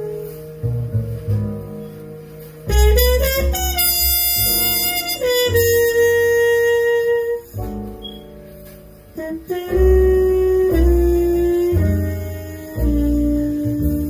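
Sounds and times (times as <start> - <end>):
plucked double bass: 0.0 - 14.0
muted trumpet: 2.7 - 7.5, 9.2 - 14.0.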